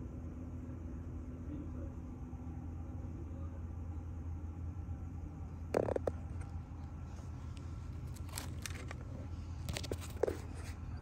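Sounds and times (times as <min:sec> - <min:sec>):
low background hum: 0:00.0 - 0:11.0
scuffs and crackles: 0:06.2 - 0:11.0.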